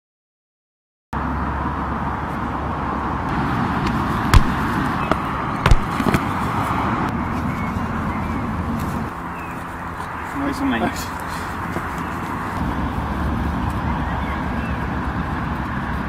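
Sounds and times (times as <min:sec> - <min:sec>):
outdoor microphone noise: 0:01.2 - 0:16.0
football being struck: 0:03.8 - 0:06.3.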